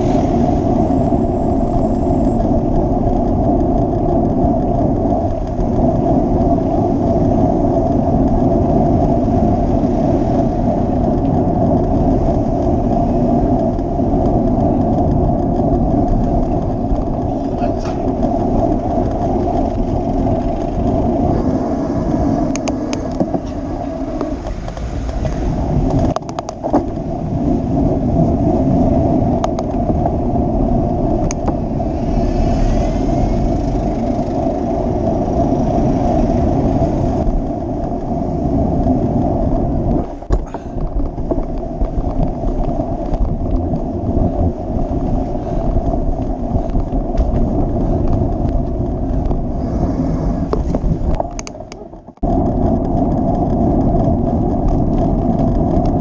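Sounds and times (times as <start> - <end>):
wind and road noise: 0.0 - 56.0
traffic engines idling: 11.9 - 25.9, 26.9 - 37.4, 40.3 - 41.4.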